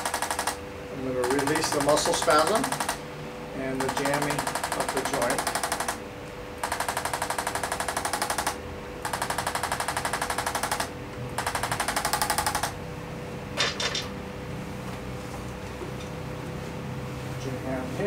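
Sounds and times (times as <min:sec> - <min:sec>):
electric adjusting instrument pulsing: 0:00.0 - 0:13.3.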